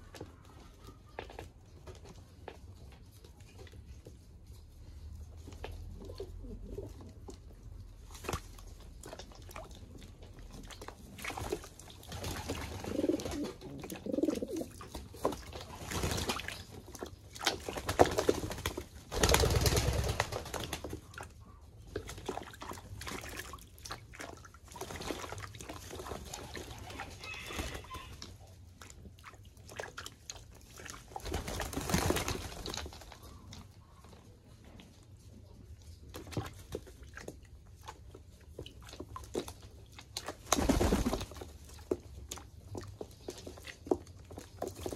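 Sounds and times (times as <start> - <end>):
pigeons flapping and splashing: 0.0 - 34.5, 35.7 - 44.9
pigeon cooing: 6.0 - 7.2, 12.8 - 14.8.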